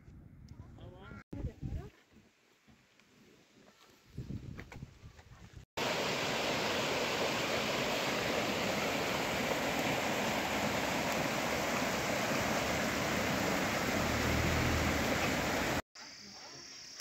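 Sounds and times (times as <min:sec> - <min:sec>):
stream water rushing: 0:05.8 - 0:15.8.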